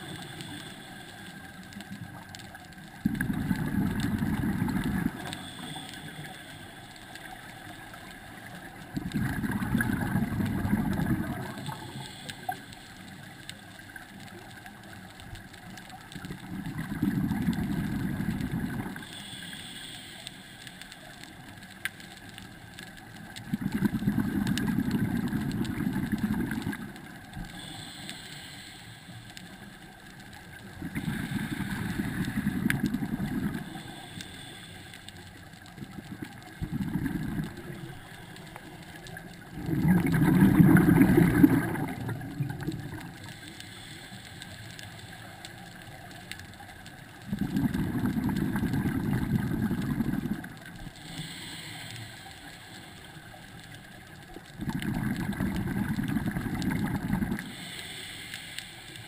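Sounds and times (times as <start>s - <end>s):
regulator inhale hiss: 0.0s - 2.1s, 3.4s - 8.8s, 10.0s - 14.4s, 17.6s - 23.3s, 24.4s - 35.7s, 36.5s - 46.6s, 47.5s - 54.1s, 55.3s - 59.0s
bubbling regulator exhalation: 3.0s - 5.8s, 8.9s - 12.2s, 16.4s - 19.1s, 23.4s - 27.0s, 30.8s - 34.2s, 35.8s - 38.3s, 39.5s - 43.2s, 47.2s - 51.6s, 54.6s - 57.8s.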